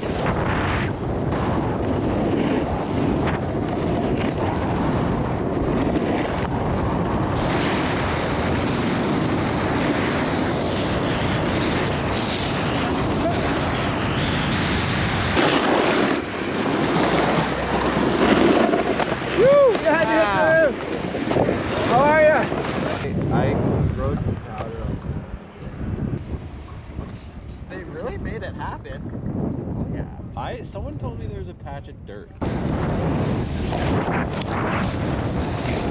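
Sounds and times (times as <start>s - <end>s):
snowboard scraping over snow: 0.0s - 25.0s, 32.4s - 35.9s
wind buffeting microphone: 0.0s - 35.9s.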